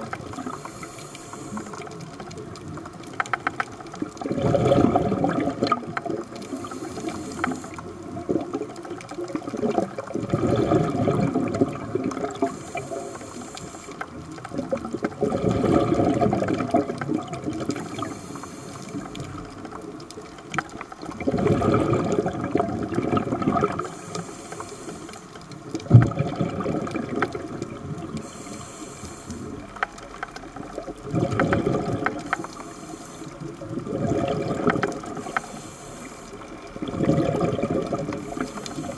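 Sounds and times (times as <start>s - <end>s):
rush of exhaled bubbles: 0.0s - 24.3s, 25.0s - 38.9s
regulator hissing inhale: 0.2s - 1.9s, 6.4s - 8.0s, 12.4s - 14.2s, 17.8s - 19.4s, 23.8s - 25.4s, 28.2s - 29.7s, 32.2s - 33.6s, 35.1s - 36.6s, 38.2s - 38.9s.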